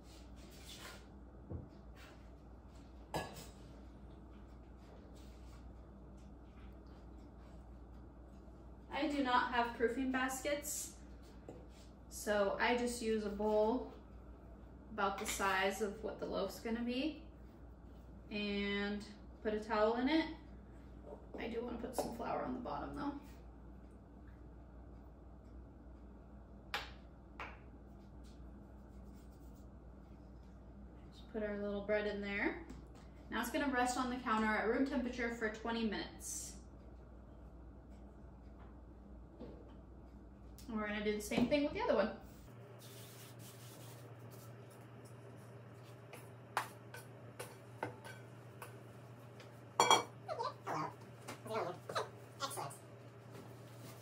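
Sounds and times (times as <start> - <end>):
room hum: 0.0 - 54.0.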